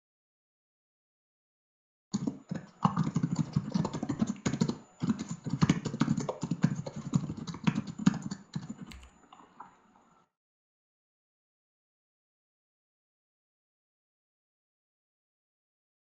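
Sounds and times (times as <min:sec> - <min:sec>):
computer keyboard typing: 0:02.2 - 0:09.4.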